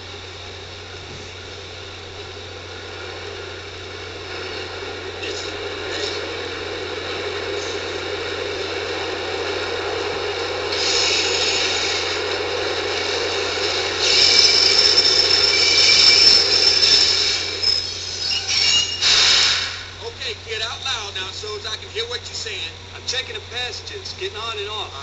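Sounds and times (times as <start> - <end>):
subway train rumbling: 0.0 - 25.0
burst of noise: 2.7 - 20.2
metal brake squealing: 14.0 - 19.5.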